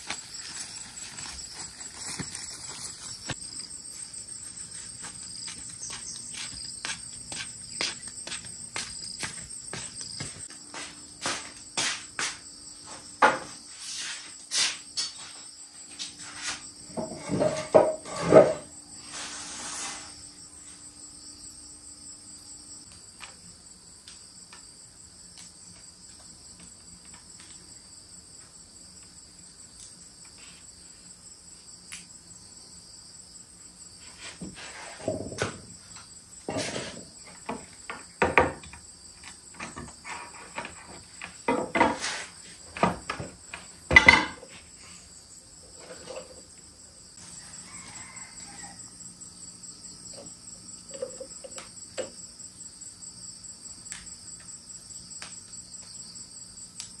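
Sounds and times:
high-pitched insect chorus: 0.0s - 57.0s.

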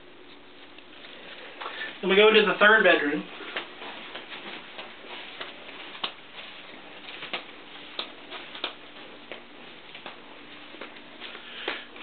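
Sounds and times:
faint steady hum: 0.0s - 12.0s
footsteps on carpet: 3.2s - 12.0s.

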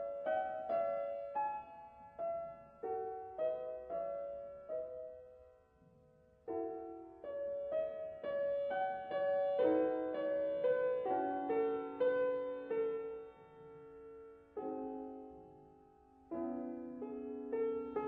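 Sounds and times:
gentle piano music: 0.0s - 18.0s.

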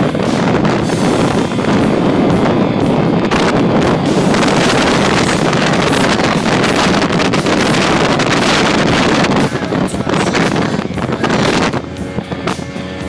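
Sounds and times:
outboard motor and water rush: 0.0s - 13.0s
wind buffeting microphone: 0.0s - 13.0s.

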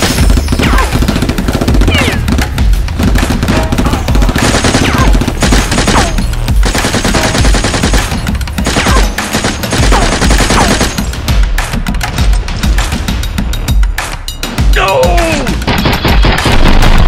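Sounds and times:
rapid machine-gun fire: 0.0s - 11.2s, 15.7s - 17.0s.

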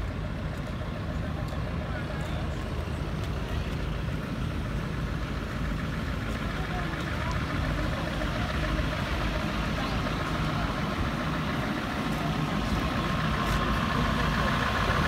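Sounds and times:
diesel truck engine idling: 0.0s - 15.0s.

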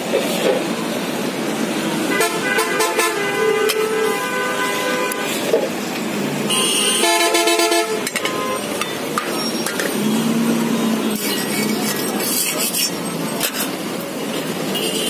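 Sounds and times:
vehicle horns honking: 2.1s - 5.4s, 6.5s - 10.2s, 14.6s - 15.0s.

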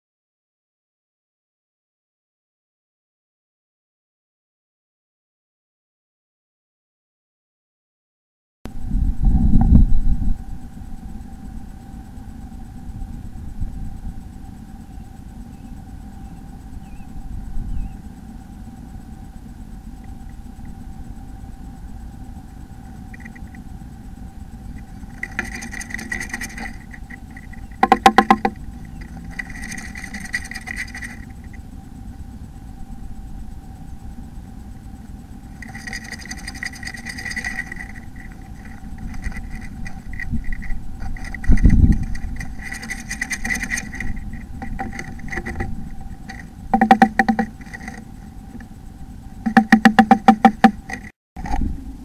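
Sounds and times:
low hum and rumble: 8.7s - 52.0s
bird rustling in nest box: 24.8s - 31.5s, 35.6s - 48.0s
sharp knocks against wooden box: 27.8s - 28.6s, 49.5s - 50.8s.

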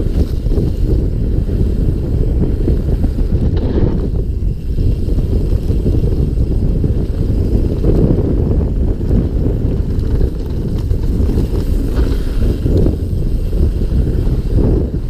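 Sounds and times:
bike tyres rumbling on dirt: 0.0s - 15.0s
wind buffeting microphone: 0.0s - 15.0s.

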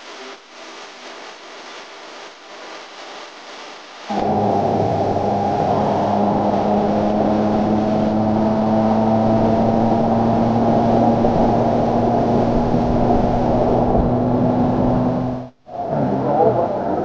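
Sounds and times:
motorcycle engine running: 4.1s - 15.5s
wind rushing over microphone: 4.1s - 17.0s.

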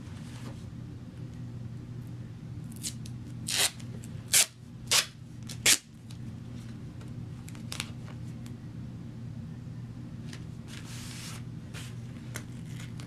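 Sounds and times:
duct tape tearing: 2.7s - 5.9s.

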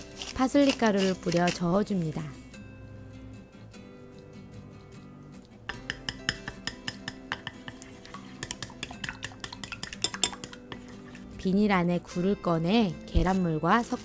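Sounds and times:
chopsticks clicking against glass bowl: 5.7s - 10.9s.

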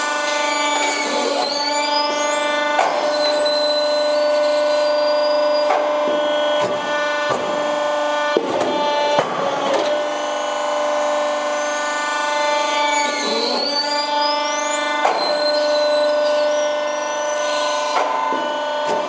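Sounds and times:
faint squeal: 0.4s - 6.5s, 12.7s - 18.8s.

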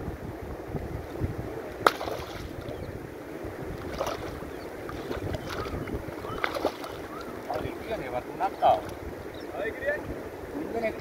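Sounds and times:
wind rumble on microphone: 0.0s - 11.0s
fish thrashing in water: 1.8s - 2.7s, 3.8s - 7.8s.

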